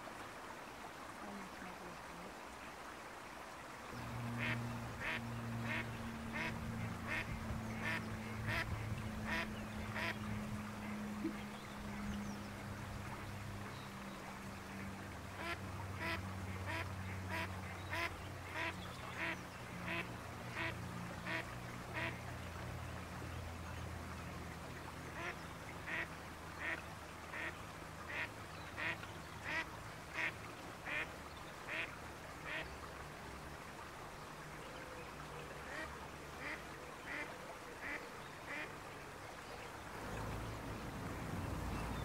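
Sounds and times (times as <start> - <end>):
mallard duck quacking: 4.4 - 10.2, 15.4 - 21.4, 35.7 - 38.7.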